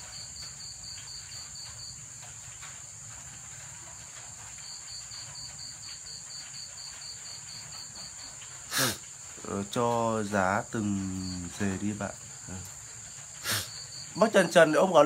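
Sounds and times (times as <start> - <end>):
insect high-pitched trill: 0.0 - 15.0
insect pulsing chirps: 4.6 - 15.0.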